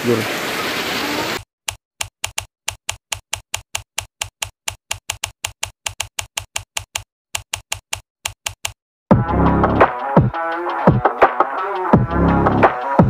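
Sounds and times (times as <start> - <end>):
typewriter key clicks: 2.0 - 8.8.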